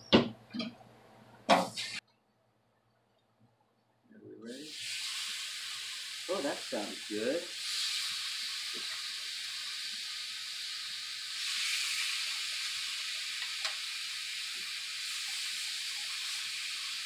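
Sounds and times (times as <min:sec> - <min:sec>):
meat sizzling on a griddle: 0:04.6 - 0:17.0.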